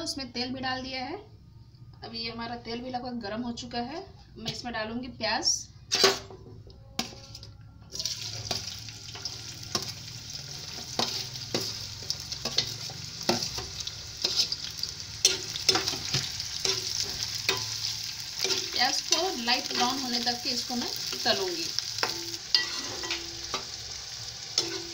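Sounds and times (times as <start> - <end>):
onions sizzling in hot oil: 8.0 - 24.9
spatula scraping and knocking pan: 8.5 - 20.4, 24.6 - 24.9.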